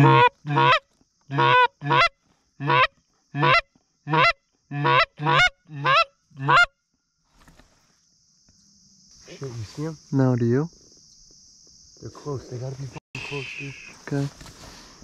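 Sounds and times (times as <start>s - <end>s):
goose honks: 0.0s - 6.7s.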